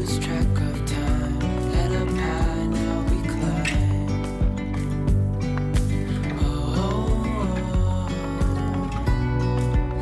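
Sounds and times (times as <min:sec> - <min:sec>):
background music with steady beat: 0:00.0 - 0:10.0.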